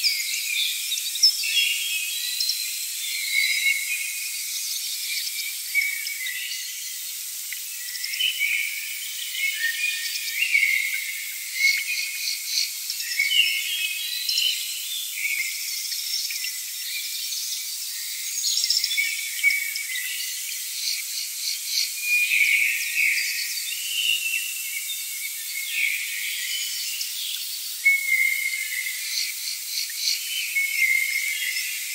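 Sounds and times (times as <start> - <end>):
insects chirping and trilling: 0.0 - 31.9.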